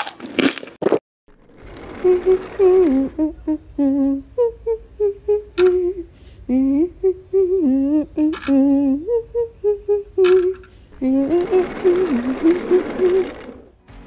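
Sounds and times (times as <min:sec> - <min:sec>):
person humming a melody: 0:01.9 - 0:13.5
sharp clicks: 0:08.2 - 0:08.7.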